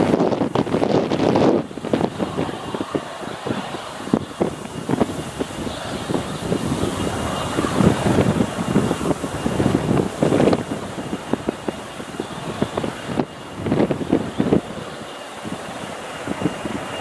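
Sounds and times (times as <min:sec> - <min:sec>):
helicopter rotor chopping: 0:00.0 - 0:17.0
helicopter turbine noise: 0:00.0 - 0:17.0
wind buffeting microphone: 0:00.0 - 0:17.0.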